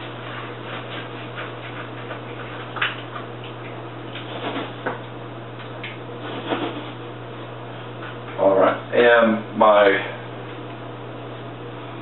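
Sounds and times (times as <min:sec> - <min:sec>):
steady low hum: 0:00.0 - 0:12.0
utensil scraping a skillet: 0:06.2 - 0:07.0.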